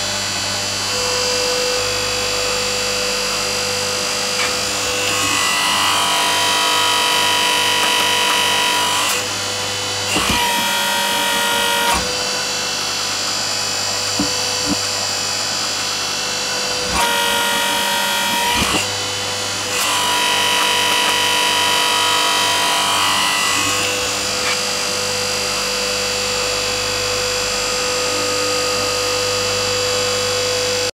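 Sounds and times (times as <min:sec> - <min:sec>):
hydraulic press motor humming: 0:03.2 - 0:25.4.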